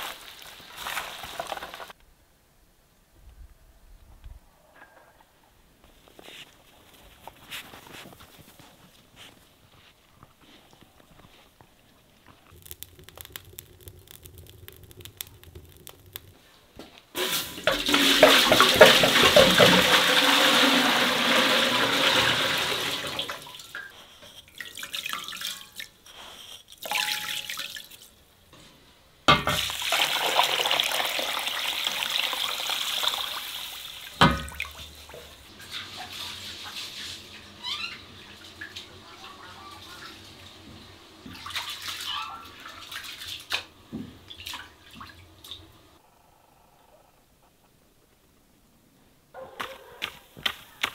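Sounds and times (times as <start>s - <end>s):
water pouring into metal pot: 12.5s - 16.4s, 17.2s - 23.8s, 26.8s - 28.0s, 29.5s - 37.2s.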